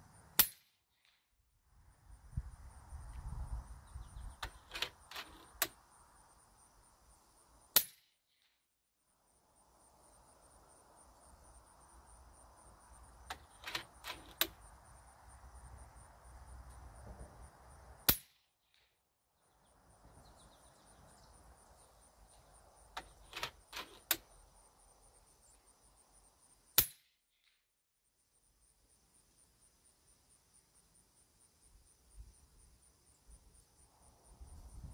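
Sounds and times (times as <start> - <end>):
insects trilling: 9.1 - 18.1, 19.4 - 26.8.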